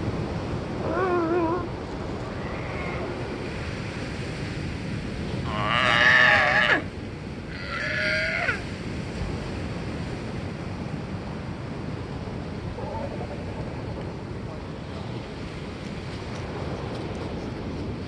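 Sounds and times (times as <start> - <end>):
ocean waves: 0.0 - 18.0
sea lion calls: 0.7 - 3.3, 5.4 - 6.9, 7.5 - 8.7, 12.7 - 14.0.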